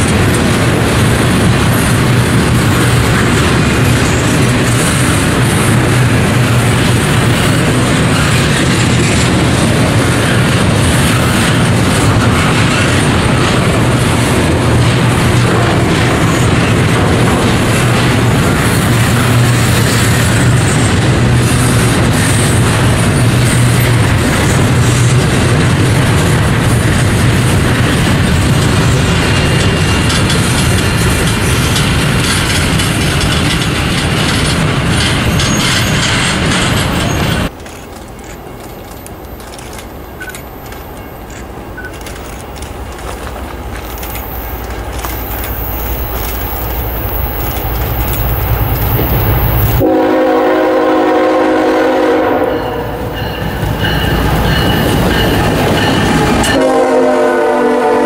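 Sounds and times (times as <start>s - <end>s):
approaching train rumble: 0.0s - 58.0s
freight train wheels rumbling: 0.0s - 58.0s
train horn: 49.8s - 53.2s, 55.9s - 58.0s.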